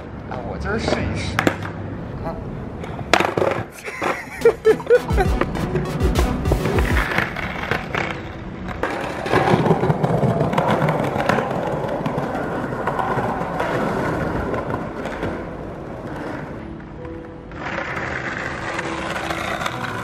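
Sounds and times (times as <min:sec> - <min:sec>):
skateboard rolling over concrete: 0:00.8 - 0:20.0
skateboard clicks: 0:06.6 - 0:20.0.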